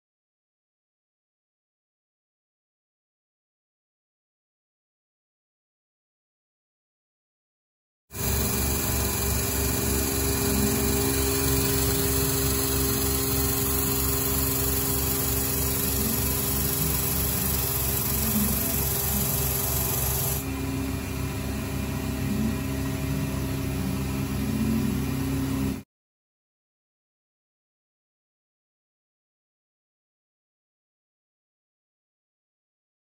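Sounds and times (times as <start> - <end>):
repeating mechanical pulse: 8.2 - 20.6
milling machine cutting metal: 8.2 - 21.0.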